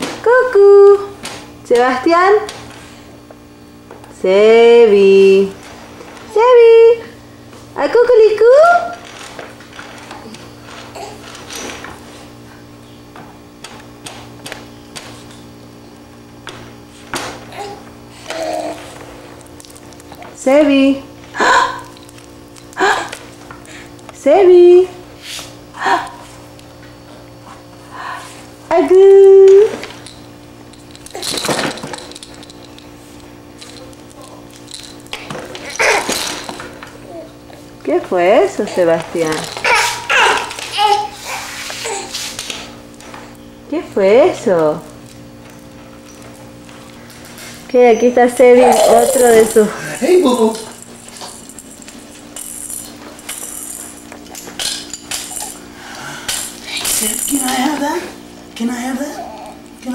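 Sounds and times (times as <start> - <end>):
plastic toys rattling: 29.7 - 36.8, 38.8 - 41.0, 48.5 - 55.6, 56.3 - 57.8.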